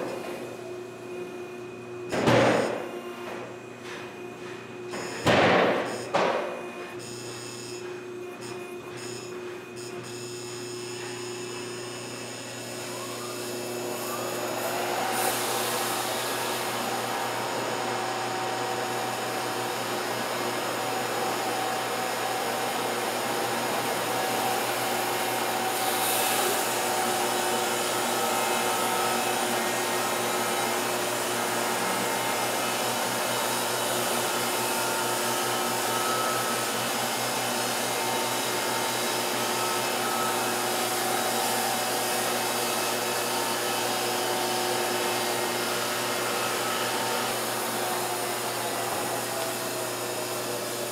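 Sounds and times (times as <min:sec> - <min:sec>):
band sawmill sawing log: 0:11.8 - 0:50.9.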